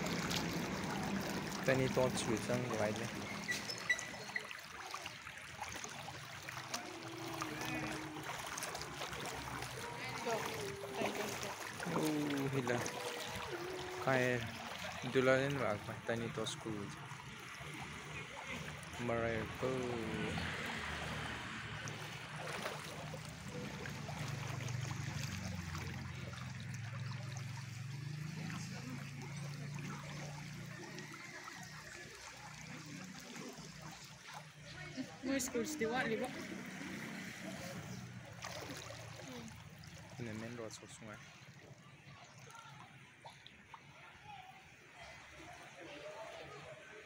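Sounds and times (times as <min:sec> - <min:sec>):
floodwater running and sloshing: 0:00.0 - 0:47.0.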